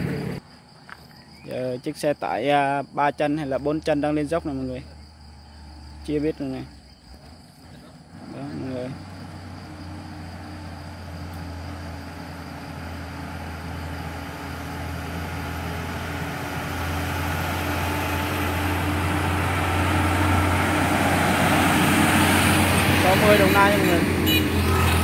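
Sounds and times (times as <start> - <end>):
truck engine under load: 0.0 - 0.4, 7.1 - 25.0.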